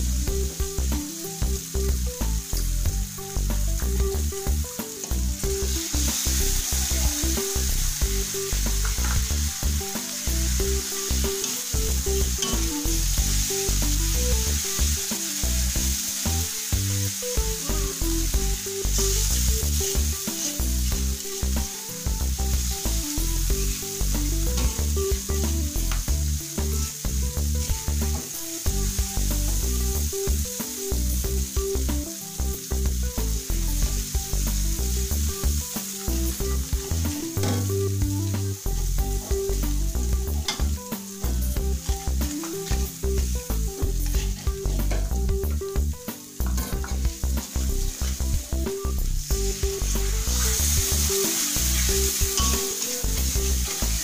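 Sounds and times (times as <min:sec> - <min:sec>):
background music: 0:00.0 - 0:54.0
paste sizzling in a wok: 0:00.0 - 0:54.0
metal spatula stirring: 0:44.0 - 0:45.1, 0:50.0 - 0:54.0.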